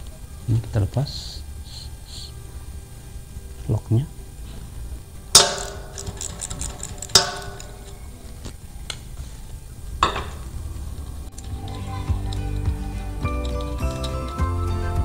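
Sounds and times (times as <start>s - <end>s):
metal parts clinking: 5.3s - 8.5s, 13.2s - 14.4s.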